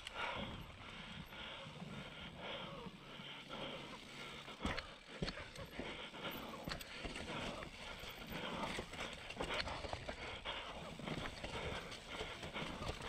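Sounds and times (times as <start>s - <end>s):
bike tyres on dirt and stone: 0.0s - 13.0s
bike rattling and clicking: 2.9s - 13.0s.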